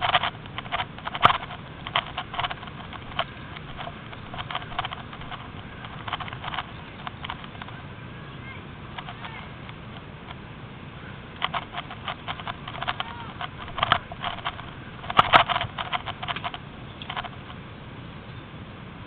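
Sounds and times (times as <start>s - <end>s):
twigs crackling and snapping: 0.0s - 7.8s, 11.4s - 17.6s.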